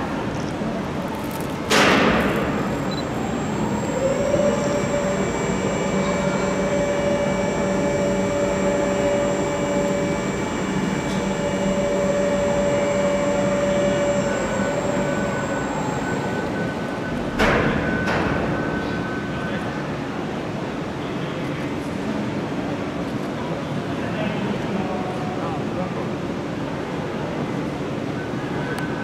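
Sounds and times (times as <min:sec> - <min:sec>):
loud burst of noise: 0:01.7 - 0:18.9
crane electric drive whining: 0:02.2 - 0:19.4
hall noise: 0:02.2 - 0:19.6
faint high pulsing tone: 0:02.8 - 0:17.3.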